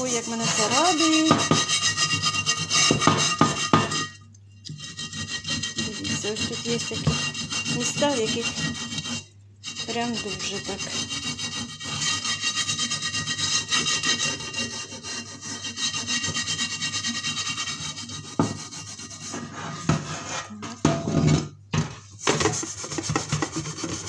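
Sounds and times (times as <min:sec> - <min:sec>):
scourer scrubbing frying pan: 0:00.0 - 0:24.0
pan knocking and clattering: 0:02.8 - 0:04.2, 0:19.9 - 0:23.7.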